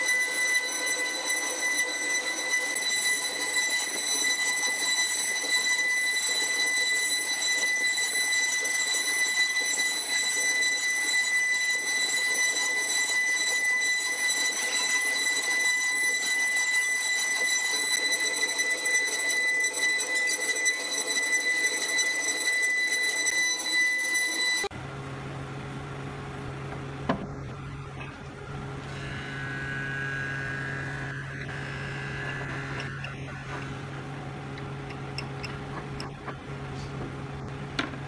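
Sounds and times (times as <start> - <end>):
router spindles whining: 0.0 - 24.7, 27.4 - 37.0.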